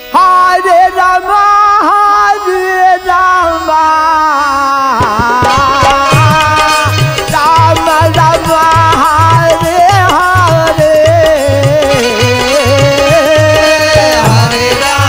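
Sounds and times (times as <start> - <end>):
harmonium: 0.0 - 15.0
man singing long wavering notes: 0.1 - 15.0
hand drums beating: 5.0 - 15.0.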